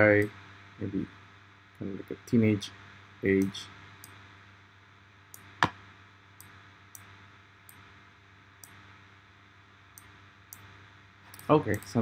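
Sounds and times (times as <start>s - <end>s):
faint low hum: 0.0s - 12.0s
computer mouse clicking: 10.0s - 10.7s, 11.3s - 12.0s.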